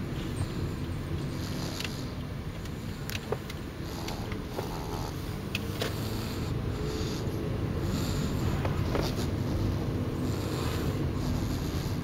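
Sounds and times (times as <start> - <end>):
baby snoring: 1.3 - 2.2, 3.8 - 12.0.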